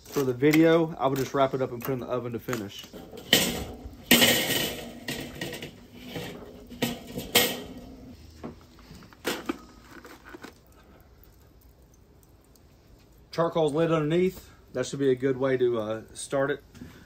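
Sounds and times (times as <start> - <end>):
light metal scraping: 0.0 - 10.6
metal grill grate clanking: 0.1 - 8.2.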